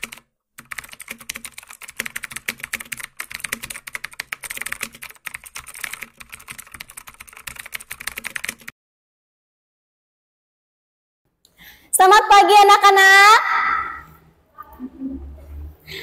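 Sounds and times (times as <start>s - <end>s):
fast keyboard typing: 0.0s - 8.7s.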